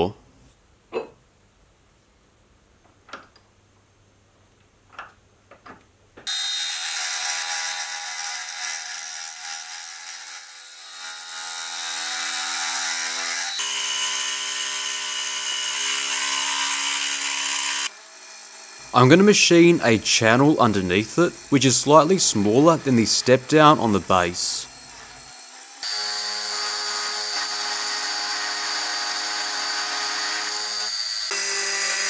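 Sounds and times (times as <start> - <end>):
milling machine cutting steel: 9.6 - 32.0.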